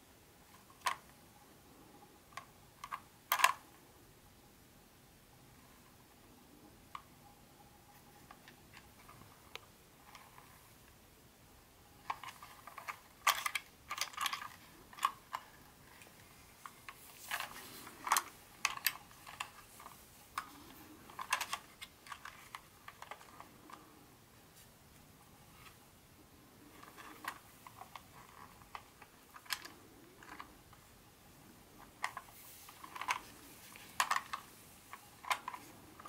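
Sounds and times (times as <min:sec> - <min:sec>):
plastic parts clicking and clattering: 0:00.5 - 0:01.1, 0:02.3 - 0:03.7, 0:12.0 - 0:24.0, 0:26.6 - 0:36.0.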